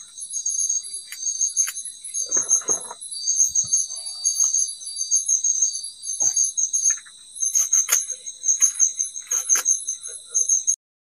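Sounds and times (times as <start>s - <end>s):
insects chirping: 0.0s - 10.8s
leaves being stripped by hand: 7.6s - 9.7s.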